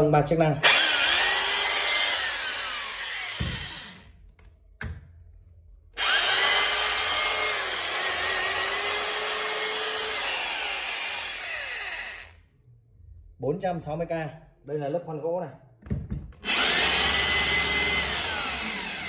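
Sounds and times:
hammer drill motor whine: 0.6 - 4.1, 6.0 - 12.4, 16.4 - 19.0.

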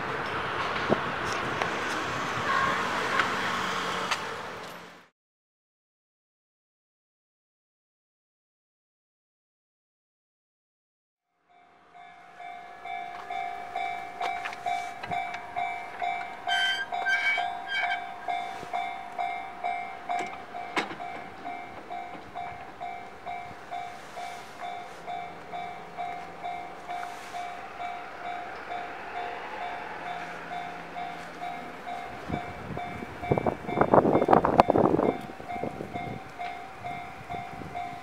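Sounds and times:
railroad crossing bell ringing: 11.4 - 38.0.

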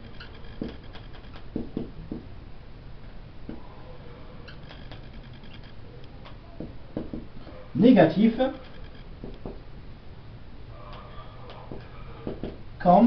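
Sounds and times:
marker squeaking on whiteboard: 0.0 - 1.8, 3.5 - 7.8, 8.4 - 9.6, 10.8 - 12.6.

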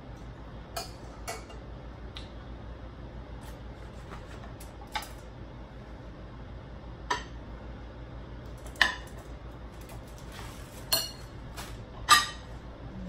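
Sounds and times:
low steady hum: 0.0 - 13.0
plates and utensil clinking: 10.8 - 12.5.

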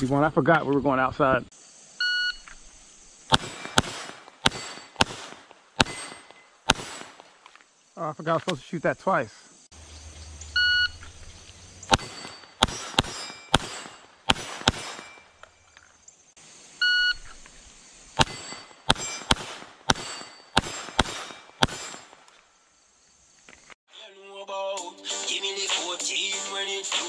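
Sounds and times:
gunshots: 3.3 - 7.3, 11.9 - 15.4, 18.2 - 22.2
music: 23.9 - 27.0.

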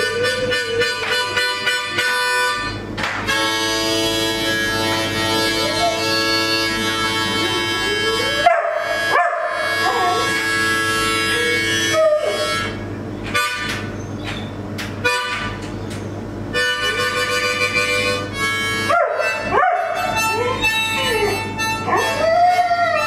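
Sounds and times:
harmonica playing chords: 0.0 - 14.0, 15.0 - 15.7, 16.4 - 23.0
dog howling: 7.5 - 12.6, 18.9 - 23.0.

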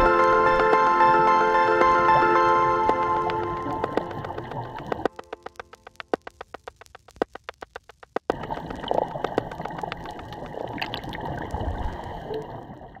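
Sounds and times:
rapid sharp clicks: 2.8 - 11.2
water gurgling and sloshing: 8.2 - 13.0.

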